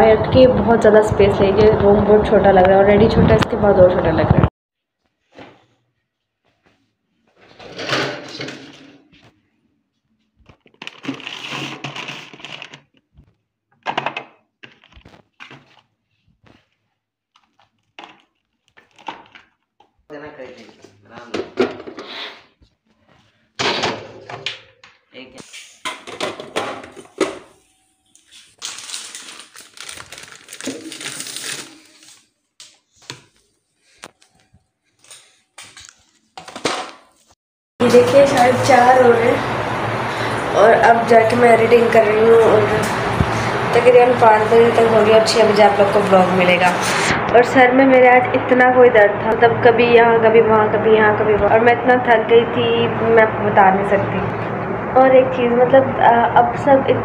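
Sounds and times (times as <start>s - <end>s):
food packaging rustling: 10.2s - 13.3s, 14.6s - 20.0s, 26.9s - 37.3s
items knocking on shelves: 21.2s - 22.0s, 25.9s - 27.5s.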